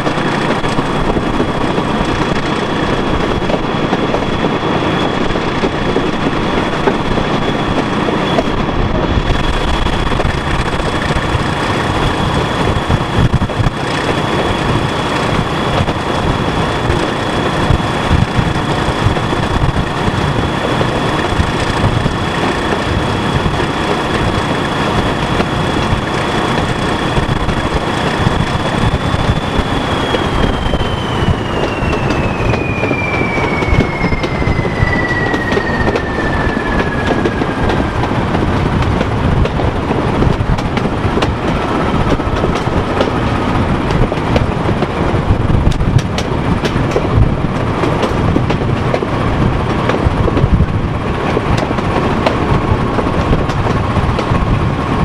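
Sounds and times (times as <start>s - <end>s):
diesel locomotive engine: 0.0s - 55.0s
rushing air: 0.0s - 55.0s
wheels on rail: 0.0s - 55.0s
high whine: 6.7s - 44.2s.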